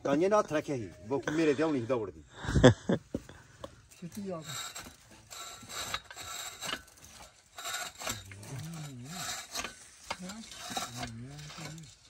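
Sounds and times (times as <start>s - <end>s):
wood rasping on wood: 4.2s - 12.0s.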